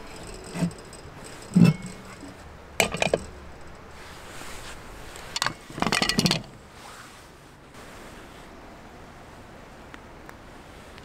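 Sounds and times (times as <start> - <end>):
objects clattering: 0.0 - 6.6.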